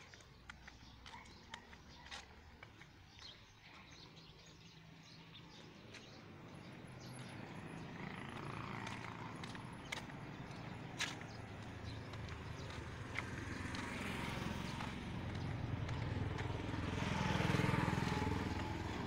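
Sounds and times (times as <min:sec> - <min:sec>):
footsteps on pavement: 0:00.0 - 0:19.0
vehicle engine hum: 0:05.2 - 0:19.0.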